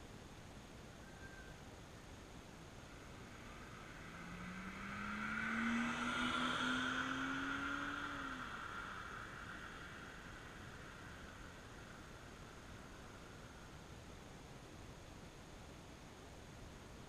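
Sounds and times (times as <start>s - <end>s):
car engine hum passing: 2.6s - 13.9s.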